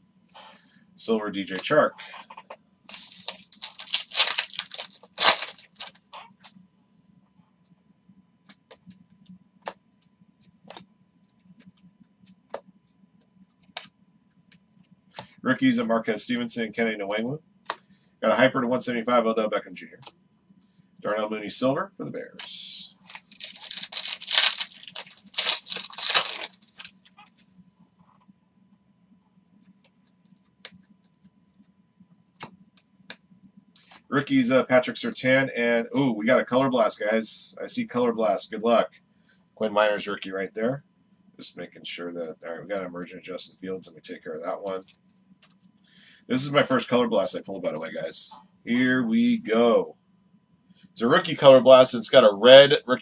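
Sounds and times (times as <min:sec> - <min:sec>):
foil wrapper tearing: 0:02.9 - 0:05.9, 0:22.4 - 0:26.9
faint clicks of cards handled: 0:44.7 - 0:45.7.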